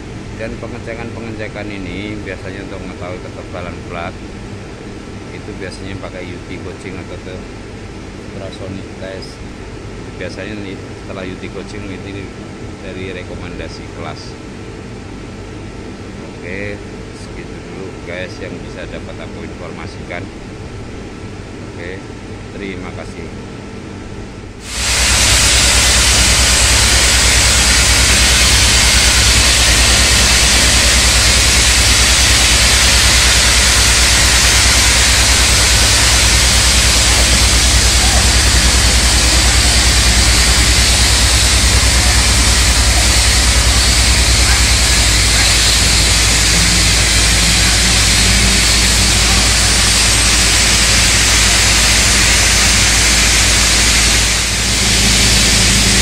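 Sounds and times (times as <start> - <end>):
low pulsing hum: 23.2 - 56.0
hissing rush of repair equipment: 24.6 - 56.0.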